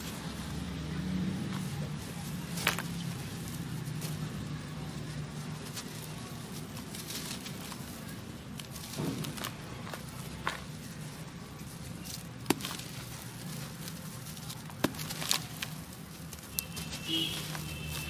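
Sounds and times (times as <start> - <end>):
dry dirt crunching in hands: 0.0 - 18.0
clay lumps cracking: 1.4 - 18.0.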